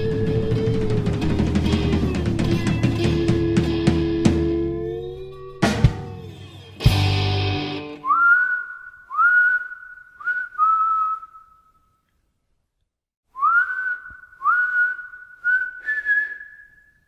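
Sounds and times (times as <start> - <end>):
person whistling a tune: 0.0 - 1.9, 8.0 - 12.0, 13.3 - 17.0.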